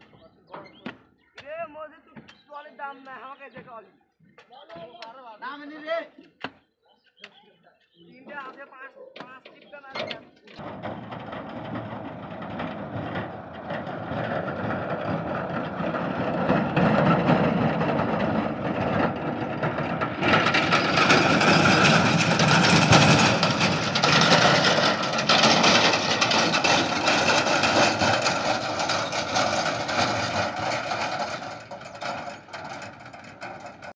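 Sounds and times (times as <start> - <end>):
diesel tractor engine running: 10.6 - 33.9.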